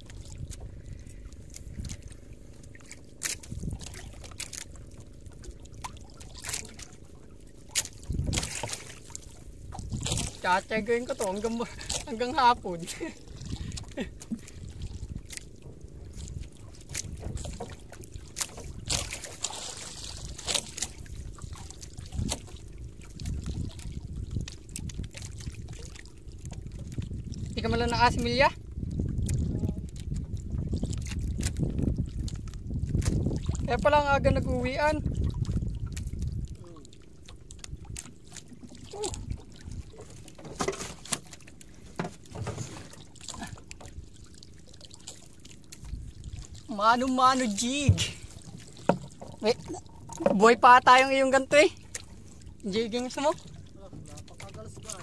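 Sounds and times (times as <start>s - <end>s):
water lapping against boat: 0.0s - 55.0s
wind on microphone: 3.4s - 4.3s, 7.9s - 12.6s, 13.3s - 19.2s, 19.8s - 36.8s.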